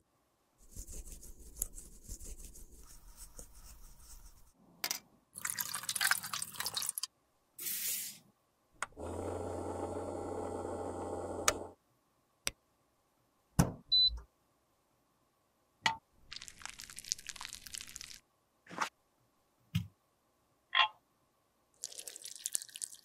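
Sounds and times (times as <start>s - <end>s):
ultrasonic cleaner humming: 8.9s - 11.8s.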